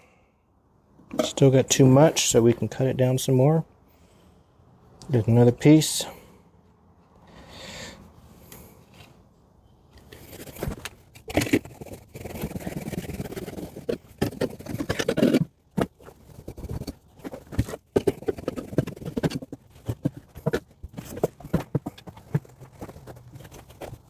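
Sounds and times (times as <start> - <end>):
blade scraping through insulation: 10.1 - 24.0.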